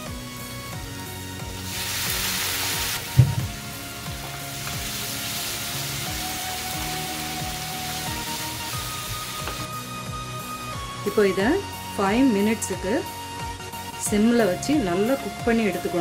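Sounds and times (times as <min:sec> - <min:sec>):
soft background music: 0:00.0 - 0:16.0
sauce sizzling in hot oil: 0:01.2 - 0:10.8
knock: 0:03.1 - 0:03.6.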